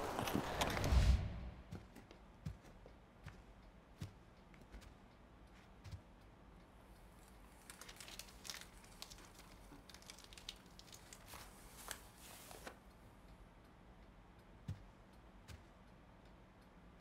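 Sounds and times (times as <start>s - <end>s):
crinkling and crackling: 0.0s - 3.4s, 6.9s - 12.8s
low room hum: 0.0s - 17.0s.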